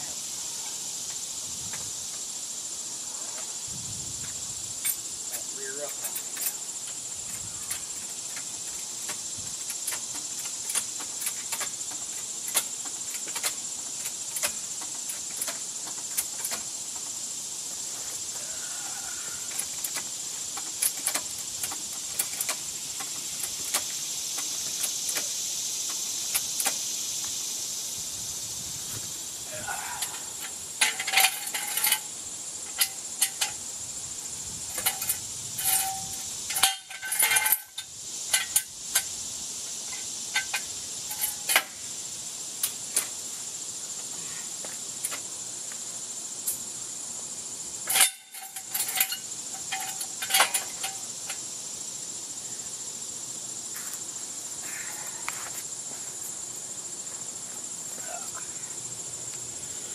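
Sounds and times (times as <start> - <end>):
high-pitched hiss: 0.0 - 59.9
metallic clicks of floor jack: 7.2 - 17.2, 19.5 - 26.8, 30.4 - 32.1, 34.7 - 39.1, 47.9 - 51.4
ringing metal clanks: 34.8 - 38.6, 47.9 - 51.0.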